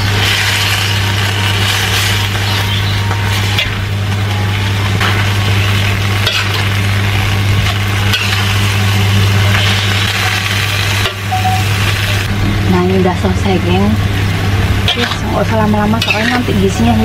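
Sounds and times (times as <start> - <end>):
steady low hum: 0.0 - 17.0
vegetables sizzling in a wok: 0.0 - 17.0
metal spatula scraping a pan: 16.0 - 16.5.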